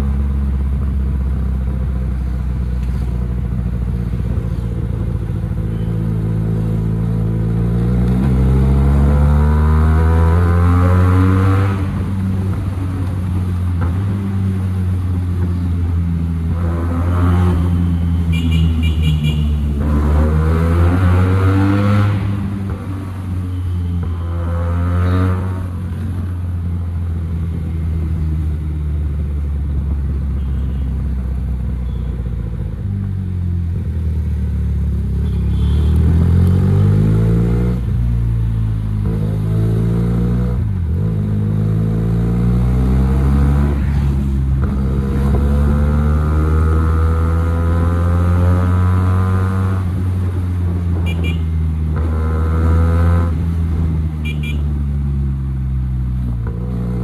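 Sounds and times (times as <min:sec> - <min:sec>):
motorcycle engine accelerating: 0:32.4 - 0:57.0.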